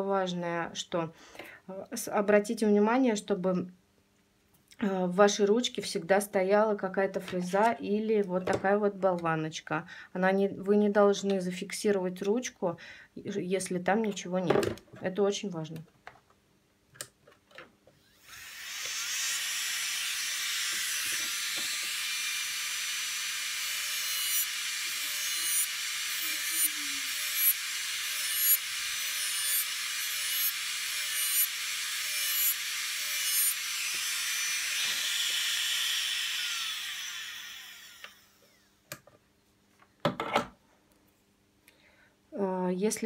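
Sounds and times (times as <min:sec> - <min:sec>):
nail drill high whine: 0:18.0 - 0:38.8
drill bit grinding nail polish: 0:18.1 - 0:38.7.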